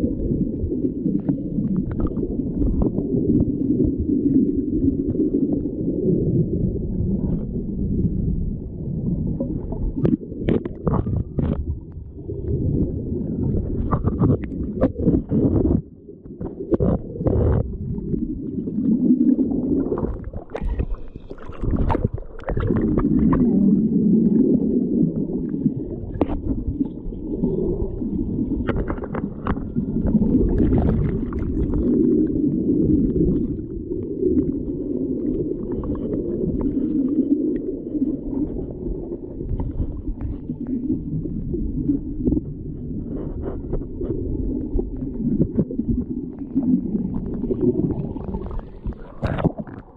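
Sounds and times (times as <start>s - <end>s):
stream water gurgling: 13.4s - 42.3s, 43.1s - 49.9s.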